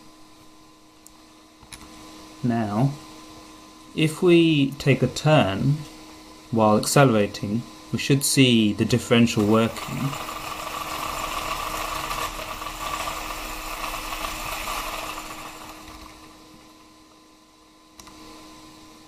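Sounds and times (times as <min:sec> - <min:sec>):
faint steady hum: 0:00.0 - 0:19.0
electric motors whirring: 0:09.2 - 0:16.6.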